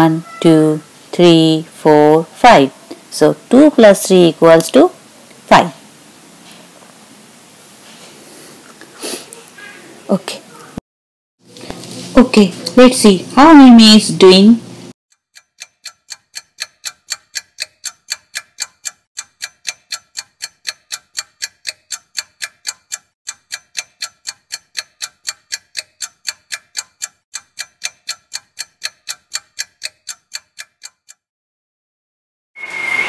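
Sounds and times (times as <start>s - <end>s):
clock ticking: 15.1s - 31.3s.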